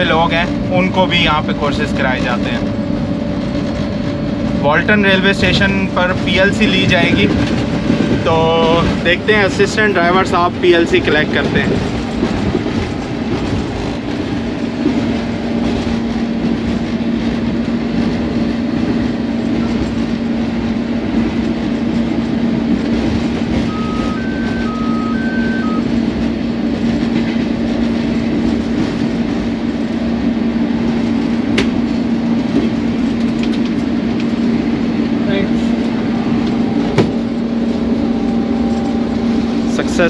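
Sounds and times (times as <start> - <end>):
locomotive engine hum: 0.0 - 40.0
wheels clattering on rails: 0.0 - 40.0
two-pitch short beeps: 23.7 - 25.9.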